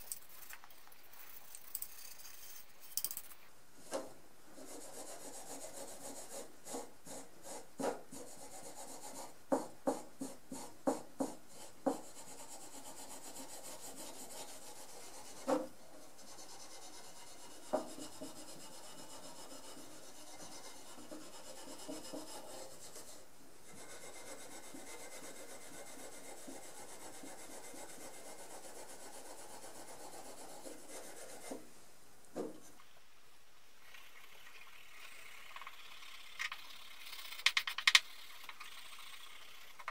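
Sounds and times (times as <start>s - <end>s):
knocks on wood: 32.4s - 32.6s.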